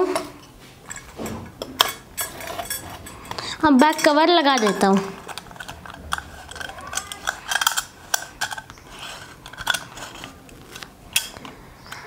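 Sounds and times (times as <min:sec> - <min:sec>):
small metal knocks: 0:00.1 - 0:08.8
metal cap threads scraping clicks: 0:00.2 - 0:12.0.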